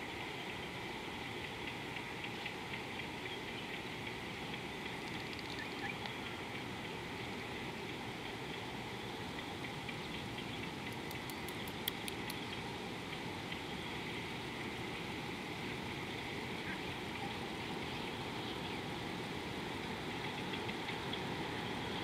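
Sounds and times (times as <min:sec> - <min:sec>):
riverside background noise: 0:00.0 - 0:22.0
faint chirps and ticks: 0:00.1 - 0:15.0, 0:20.0 - 0:22.0
sharp clicks: 0:10.8 - 0:12.4.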